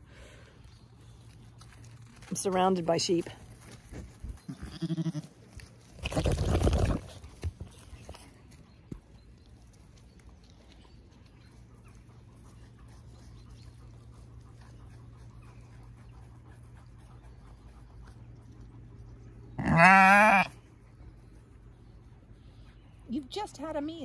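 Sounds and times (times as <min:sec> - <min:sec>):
sheep bleating: 0:04.5 - 0:05.3, 0:19.6 - 0:20.5.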